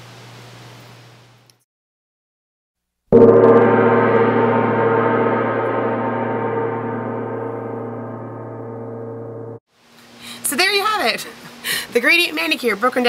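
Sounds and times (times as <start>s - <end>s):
struck ringing tone: 3.2s - 9.6s.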